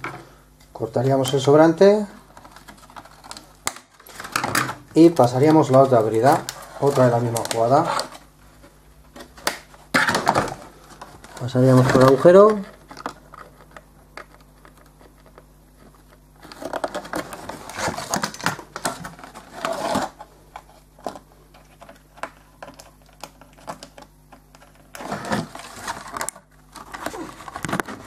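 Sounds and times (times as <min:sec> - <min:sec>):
plastic clicking and scraping: 0:20.6 - 0:28.0.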